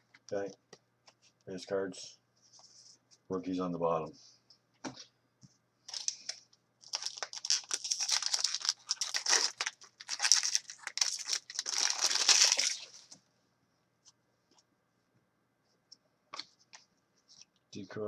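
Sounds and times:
trading cards rustling: 5.9 - 13.2.

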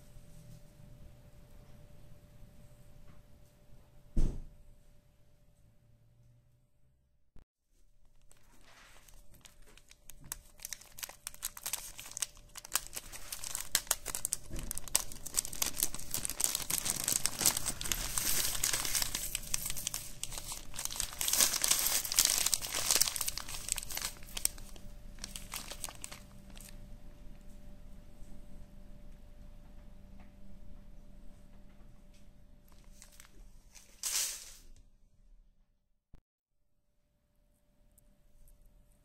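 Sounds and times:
plastic bag crinkling: 8.0 - 26.8, 32.7 - 34.6.

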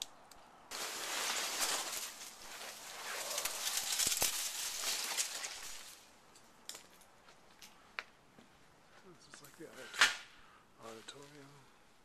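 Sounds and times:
dense crackling rustling: 0.0 - 6.8.

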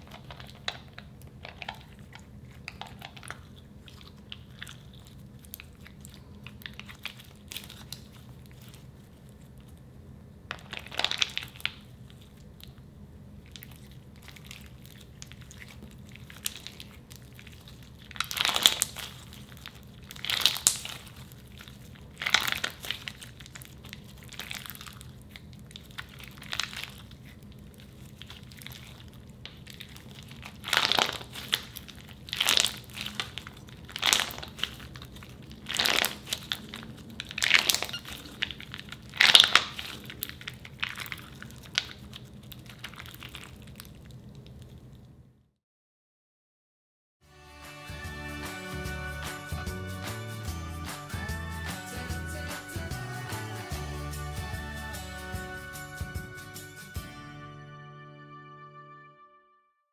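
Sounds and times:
crunchy slime squish: 0.0 - 45.2
faint steady hum: 0.0 - 45.5.

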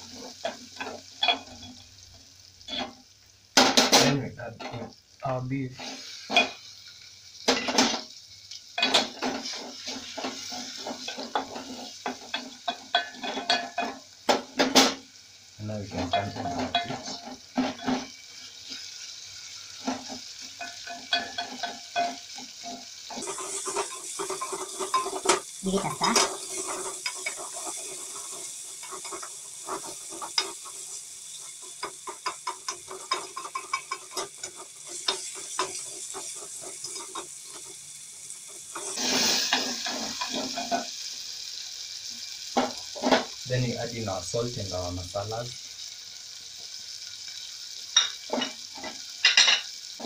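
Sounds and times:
meat sizzling in hot oil: 0.0 - 50.0
wooden spoon scraping a pot: 19.8 - 37.8, 38.5 - 40.9.

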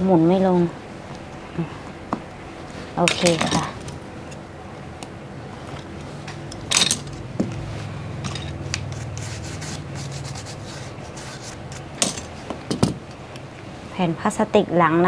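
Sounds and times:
hands handling small parts: 5.7 - 7.6.

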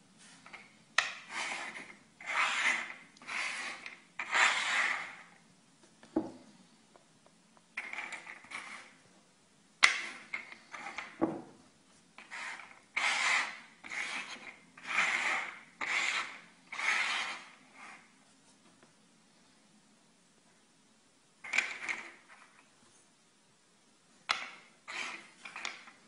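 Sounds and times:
metal thimble scraping and rolling: 7.8 - 9.0.

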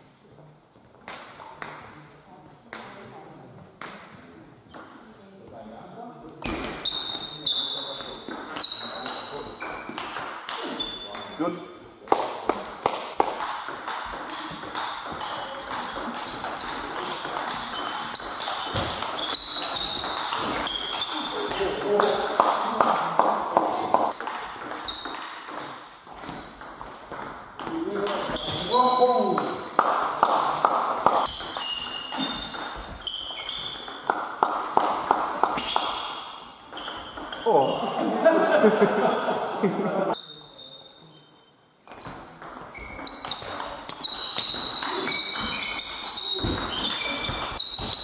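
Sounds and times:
short high squeaks: 6.4 - 9.9, 17.7 - 21.6, 31.2 - 34.0, 40.2 - 48.0.

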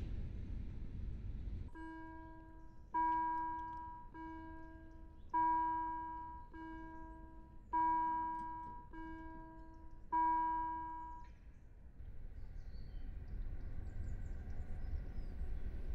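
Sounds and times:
level-crossing bell ringing: 1.8 - 11.2.

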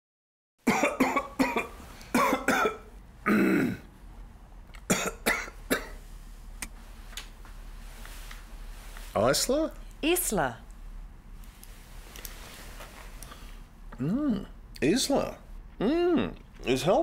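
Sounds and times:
person coughing: 0.7 - 3.9, 4.9 - 6.0.

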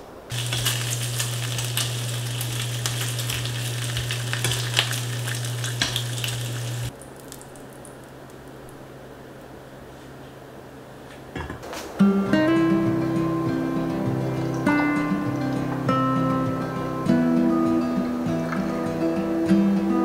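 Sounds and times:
steady low hum: 0.0 - 6.9
bacon sizzling in a frying pan: 0.3 - 7.8.

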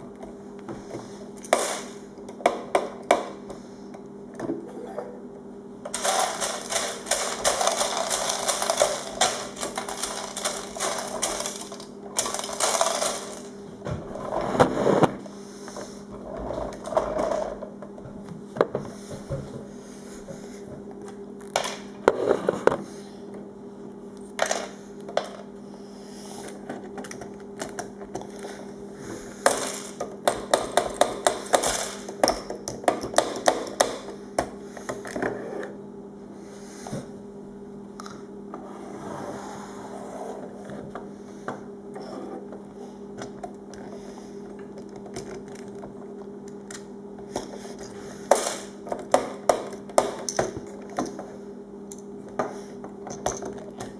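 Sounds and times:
steady low hum: 0.0 - 53.9
plastic bricks clicking and rattling: 5.9 - 13.5.

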